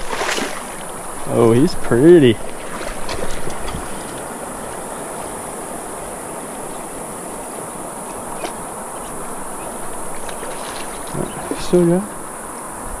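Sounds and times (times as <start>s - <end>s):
river water flowing: 0.0s - 13.0s.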